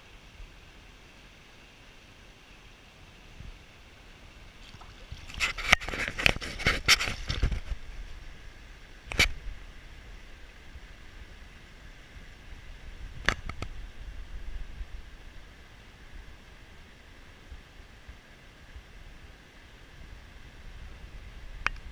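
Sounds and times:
waders splashing in shallow water: 4.6s - 7.4s.

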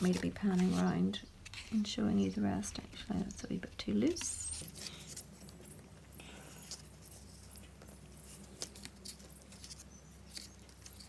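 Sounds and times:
rustling of card and twine: 0.0s - 11.0s.

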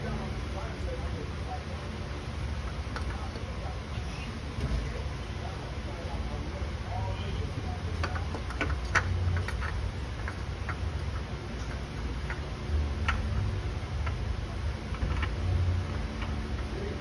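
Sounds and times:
light clicks and taps on metal: 8.0s - 14.2s.

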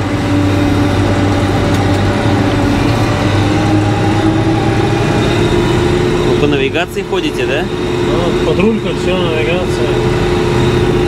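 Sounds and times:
tractor diesel engine droning: 0.0s - 11.0s.

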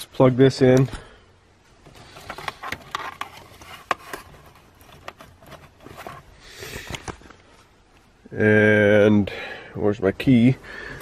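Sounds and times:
cable clicks and rustles: 1.8s - 8.0s.

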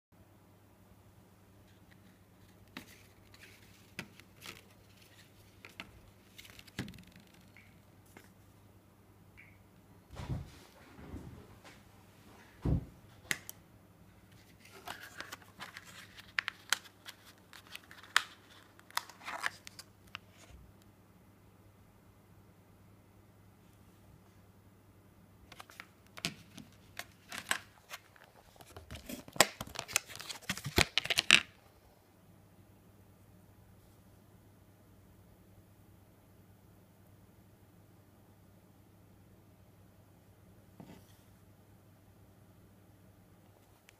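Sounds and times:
plastic packaging crackling: 14.5s - 20.2s, 25.6s - 31.6s.

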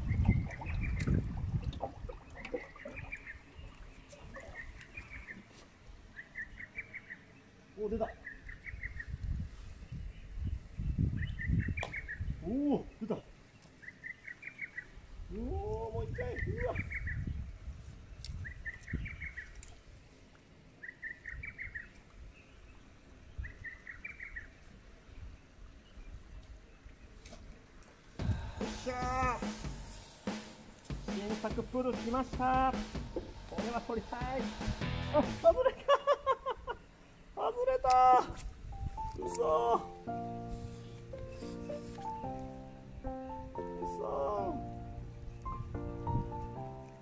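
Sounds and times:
songbird singing: 0.0s - 20.1s, 20.8s - 47.0s
bird singing: 2.2s - 9.2s, 10.9s - 15.0s, 20.8s - 24.6s
low rumble: 28.2s - 35.6s.

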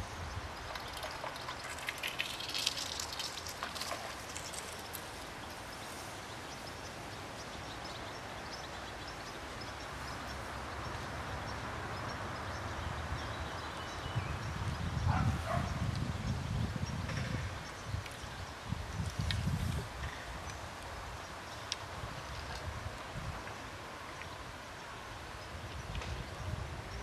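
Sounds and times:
steady hiss: 0.0s - 12.3s
rapid high ticking: 0.8s - 5.5s.

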